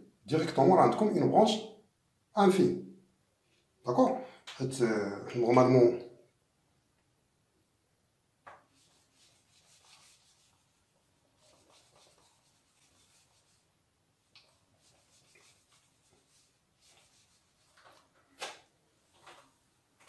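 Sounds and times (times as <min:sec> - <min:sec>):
eraser rubbing whiteboard: 0:08.7 - 0:13.7, 0:14.4 - 0:17.9.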